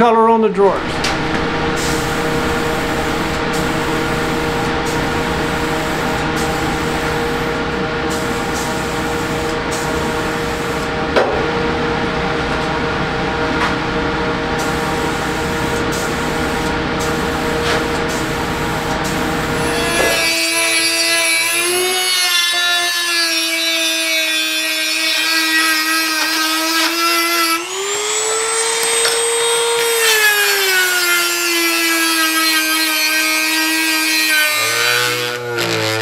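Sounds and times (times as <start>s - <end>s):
steady hum: 0.5s - 20.7s.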